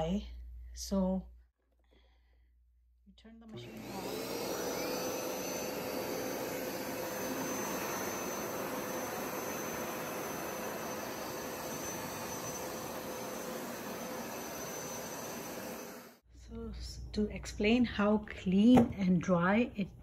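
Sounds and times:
carpet cleaner suction motor whirring: 3.5 - 16.2.

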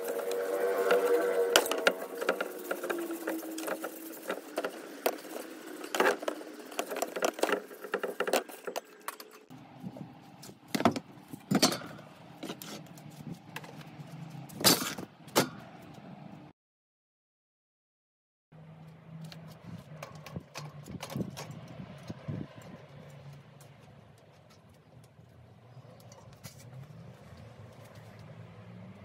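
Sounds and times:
rag rubbing on wheel: 0.0 - 9.5.

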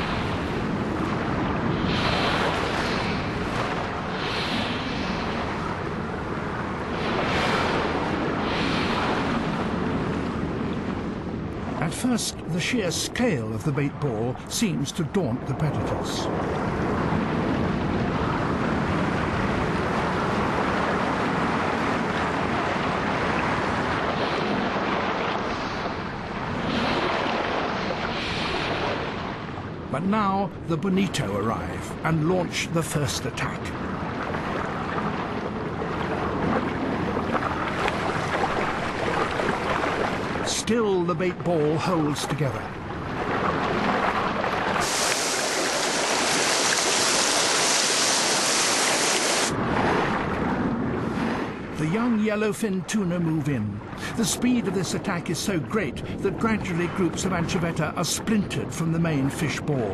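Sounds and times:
rush of water: 0.0 - 59.9
underwater rush of water: 34.0 - 40.5, 41.6 - 50.8
small fish splashing at sea surface: 44.0 - 49.5.

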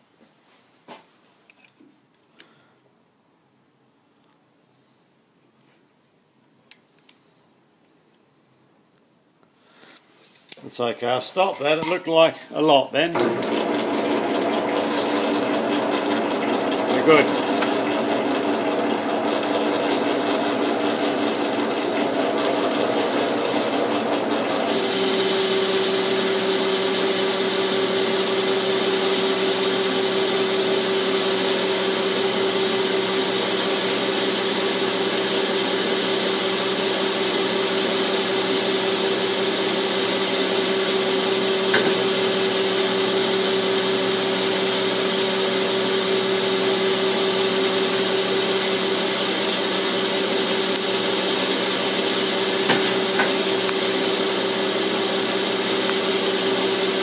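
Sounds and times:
metal lathe running: 13.1 - 57.0.

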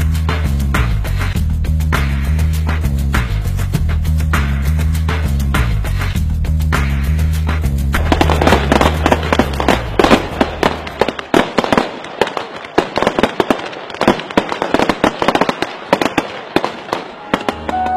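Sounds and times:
background music: 0.0 - 11.2, 16.9 - 17.9
firecrackers banging: 7.9 - 17.9.

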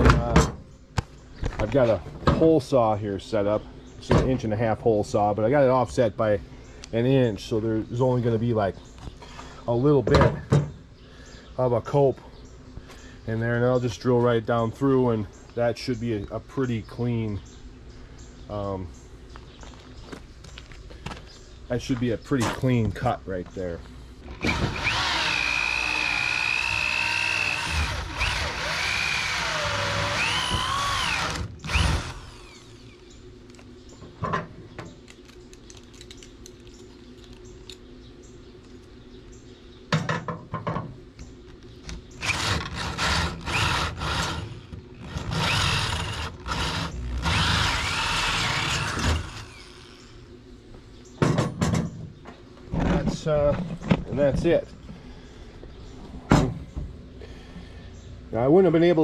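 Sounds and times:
drill cutting into wood: 24.4 - 32.9, 42.2 - 50.0.

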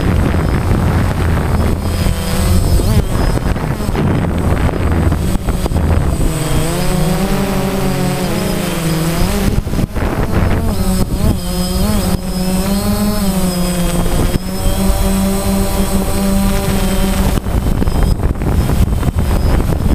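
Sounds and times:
drone buzzing whine: 0.0 - 19.9.

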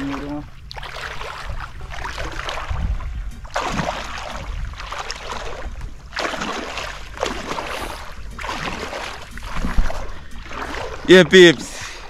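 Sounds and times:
water swishing: 0.0 - 12.0
wind rumble on microphone: 0.0 - 12.0.

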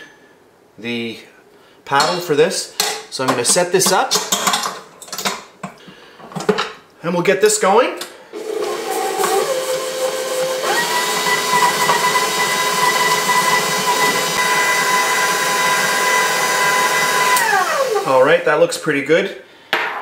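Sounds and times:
stand mixer motor whine: 8.4 - 18.2.

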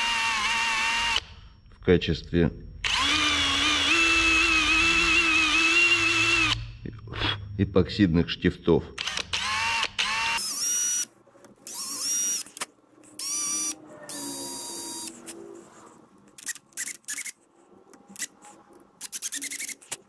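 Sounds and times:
cordless drill whine: 0.0 - 1.6, 2.8 - 6.6, 9.0 - 11.1, 11.7 - 12.6, 13.2 - 15.3.

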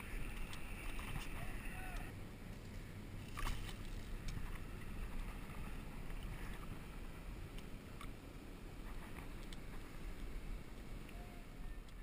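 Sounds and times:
water sloshing in shallows: 0.0 - 2.0, 3.2 - 7.2.

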